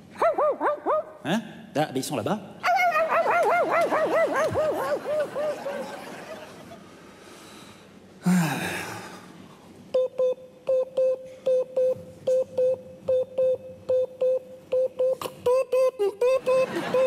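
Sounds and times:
short electronic beeps: 10.0s - 15.3s.

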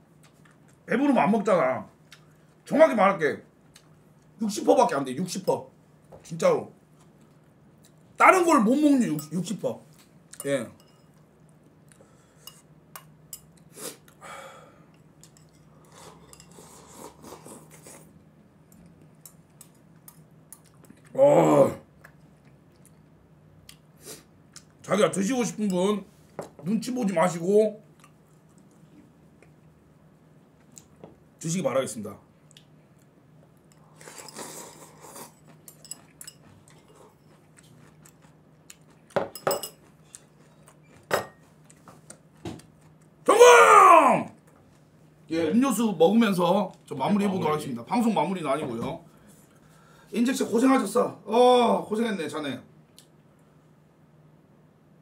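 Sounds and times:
bowl and utensils clinking on table: 10.4s - 11.2s, 39.1s - 39.9s, 41.0s - 41.5s
chewing: 32.5s - 39.2s, 39.8s - 43.2s
slurping: 33.8s - 35.5s.

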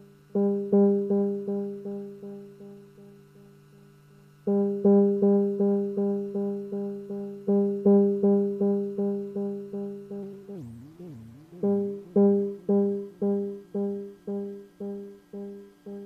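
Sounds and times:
synthesizer note repeating with delay: 9.2s - 16.0s.

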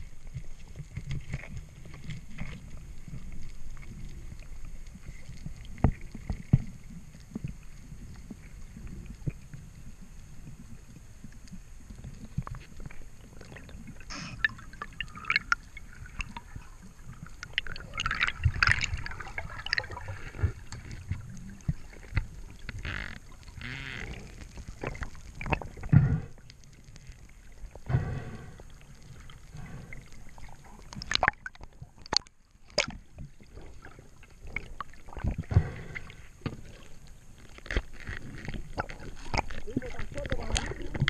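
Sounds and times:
water splashing and gurgling: 0.0s - 41.0s
steady low rumble: 24.2s - 30.9s.

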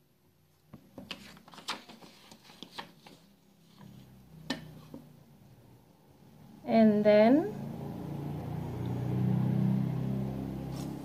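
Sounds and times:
paper rustling: 0.9s - 4.2s.

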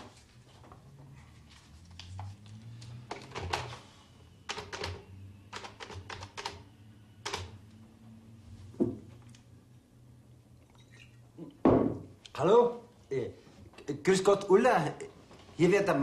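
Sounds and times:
loud knock: 11.6s - 12.1s.

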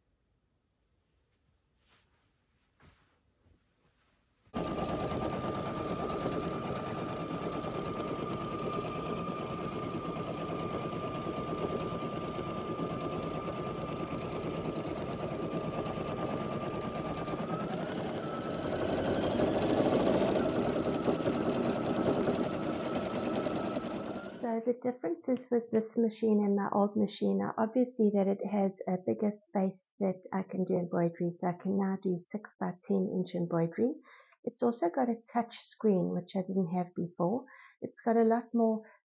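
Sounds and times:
embroidery machine needle chatter: 4.6s - 24.5s
motor whine: 4.6s - 24.5s.

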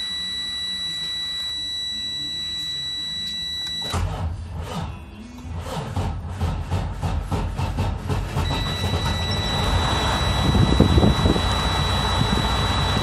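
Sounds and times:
warning buzzer high tone: 0.0s - 4.0s, 8.5s - 13.0s
diesel engine cranking: 8.4s - 13.0s.

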